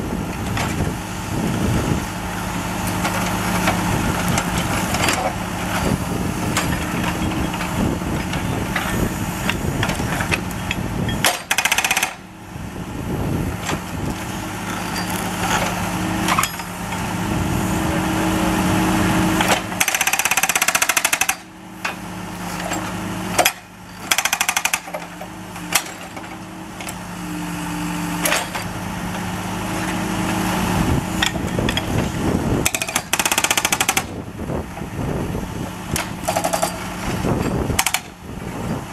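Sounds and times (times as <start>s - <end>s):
machine engine drone: 0.0s - 38.9s
hydraulic breaker hammering asphalt: 2.8s - 12.3s, 19.3s - 27.0s, 31.1s - 34.3s, 35.8s - 38.2s.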